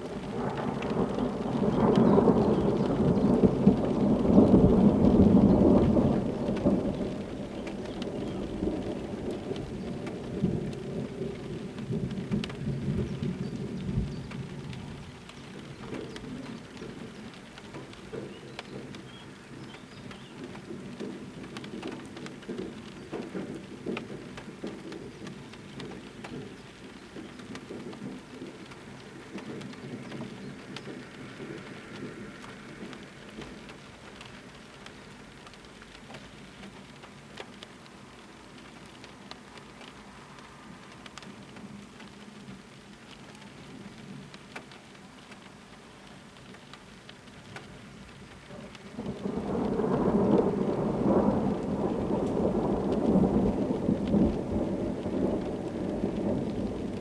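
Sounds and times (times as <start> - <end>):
steady rain: 0.0 - 57.0
thunder rumbling: 0.0 - 57.0.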